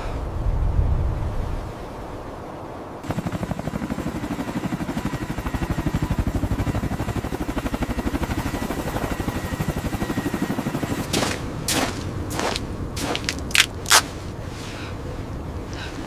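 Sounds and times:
helicopter rotors chopping: 3.0s - 14.4s.

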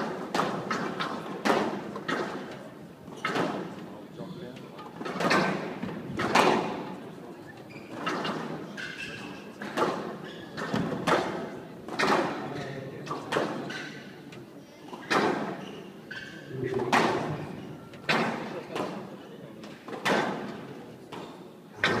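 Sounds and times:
squash ball knocks with echo: 0.0s - 2.5s, 5.0s - 6.8s, 9.6s - 12.5s, 19.9s - 22.0s
shoe squeaks on court floor: 7.4s - 9.6s, 10.2s - 10.8s, 15.0s - 16.5s.

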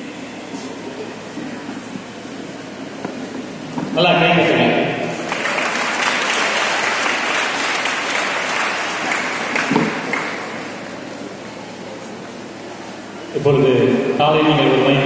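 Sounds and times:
audience applauding: 5.1s - 10.8s.

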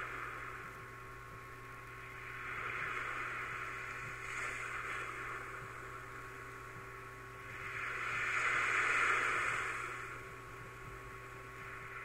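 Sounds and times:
faint steady hum: 0.0s - 12.0s
wind and surf rushing: 7.3s - 12.0s.

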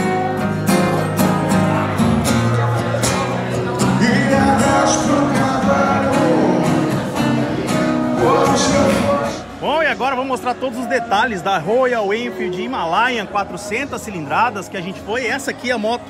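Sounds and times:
acoustic guitar strumming: 0.0s - 10.8s
man singing: 3.6s - 9.8s.

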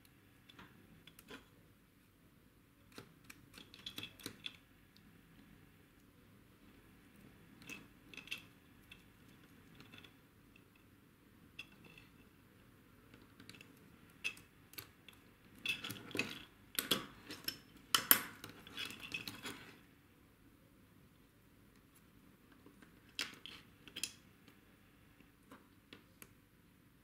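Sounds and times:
small plastic and metal parts clicking: 2.9s - 4.6s.

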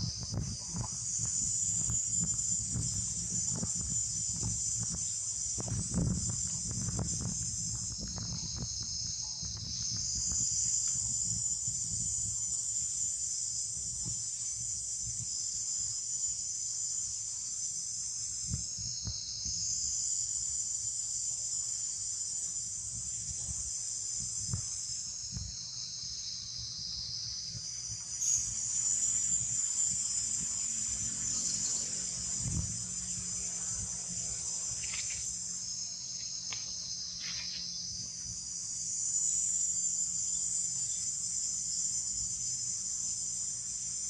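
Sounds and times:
insects buzzing: 0.0s - 44.0s.

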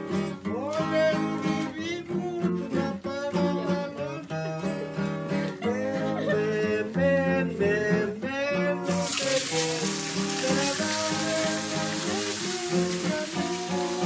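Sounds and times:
guitar music: 0.0s - 14.0s
hot oil sizzling: 8.8s - 14.0s.

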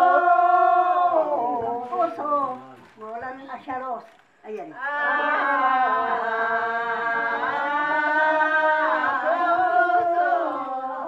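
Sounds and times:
vocal chanting in long notes: 0.0s - 2.0s, 4.8s - 11.0s.

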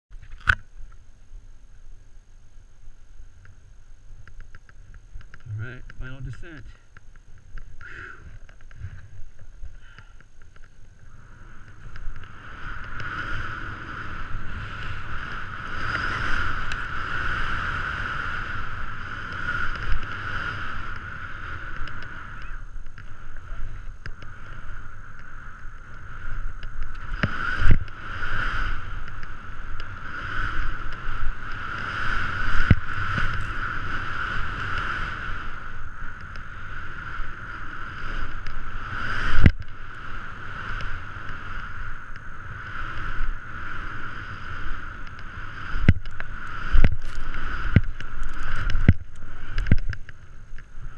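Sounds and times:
wind on microphone: 4.1s - 50.9s
skis rushing through powder snow: 11.0s - 50.9s.

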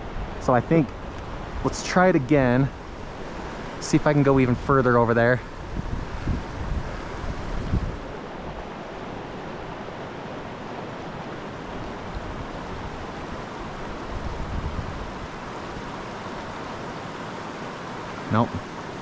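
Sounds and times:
creek water flowing: 0.0s - 19.0s.

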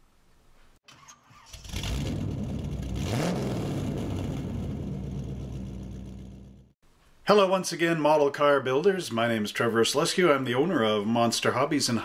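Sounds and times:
car engine starting and revving: 1.0s - 6.8s.

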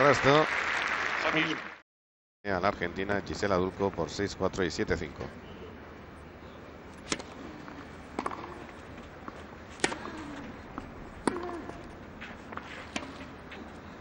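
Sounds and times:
racket hitting tennis ball: 7.0s - 13.9s.

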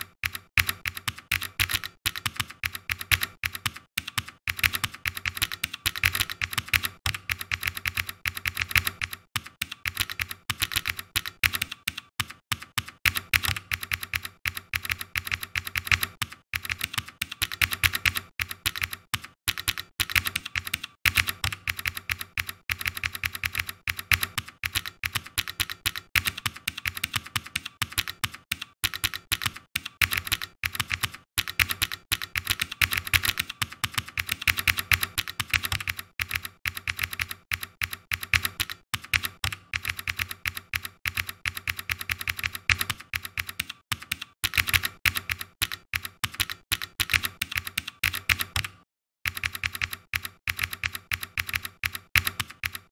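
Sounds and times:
keyboard key clicks: 41.1s - 52.9s.

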